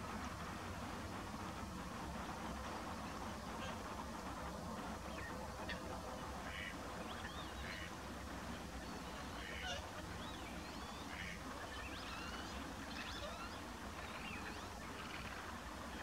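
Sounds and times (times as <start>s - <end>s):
low background hum: 0.0s - 16.0s
ducks whistling and calling: 8.8s - 15.6s.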